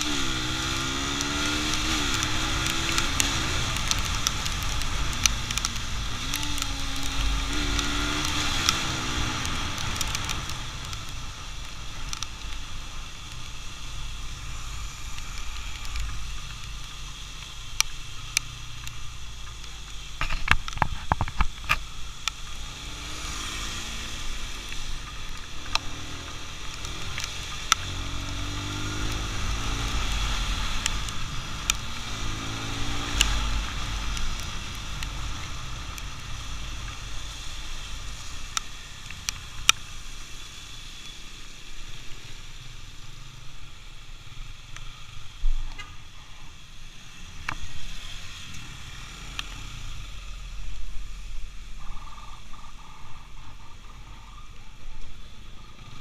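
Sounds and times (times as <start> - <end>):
motorcycle engine accelerating: 0.0 - 18.3, 19.4 - 40.2
tyre hiss on wet road: 0.0 - 56.0
wind: 0.0 - 56.0.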